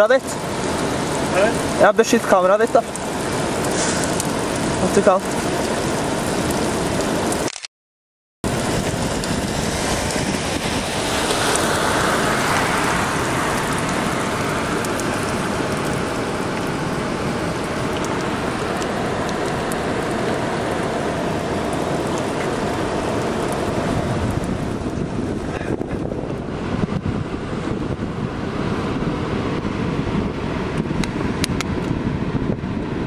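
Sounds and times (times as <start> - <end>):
steady rain falling: 0.0 - 7.5, 8.4 - 32.9
raindrops ticking on surfaces: 0.0 - 7.6, 8.5 - 27.0.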